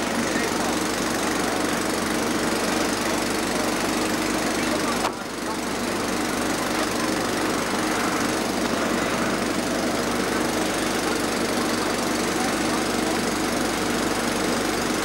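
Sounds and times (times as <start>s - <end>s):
boat engine running: 0.0s - 15.0s.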